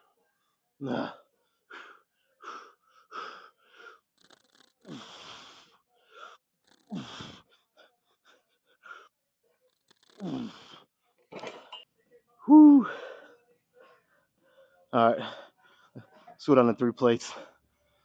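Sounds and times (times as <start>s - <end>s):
man grunting: 0.8s - 1.2s, 12.5s - 13.0s
man breathing hard: 0.8s - 9.1s, 12.5s - 16.2s.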